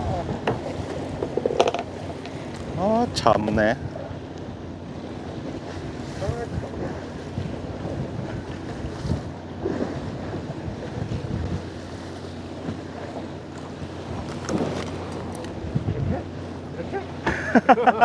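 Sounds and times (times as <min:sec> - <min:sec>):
boat machinery humming: 0:00.0 - 0:18.0
water washing along hull: 0:00.0 - 0:18.0
wind on microphone: 0:04.8 - 0:13.2, 0:14.0 - 0:16.5.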